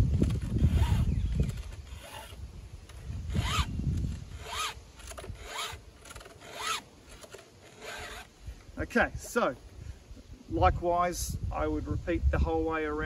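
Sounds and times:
file rasping on chain: 0:03.3 - 0:03.7, 0:04.3 - 0:08.3.

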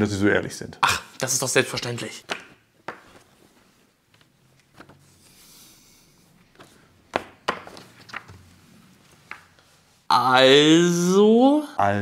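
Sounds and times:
paper sheet rustling: 0:03.0 - 0:05.4, 0:07.5 - 0:09.3.

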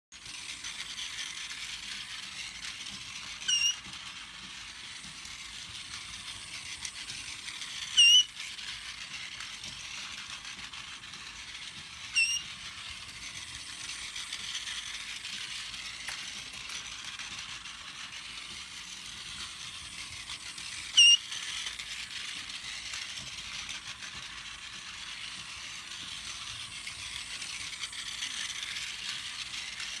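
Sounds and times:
toy train mechanical whirr: 0:00.1 - 0:30.0
parrot chirping: 0:12.2 - 0:12.4.

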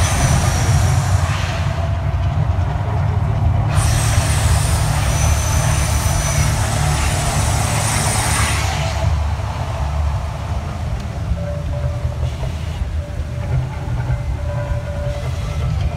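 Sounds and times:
flames hissing rush: 0:00.0 - 0:02.1, 0:03.6 - 0:10.8
deep steady rumble: 0:00.0 - 0:15.9.

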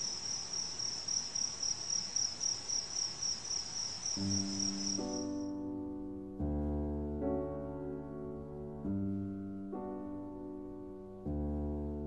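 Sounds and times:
cricket chirping: 0:00.0 - 0:05.5
soft piano music: 0:04.2 - 0:12.0.

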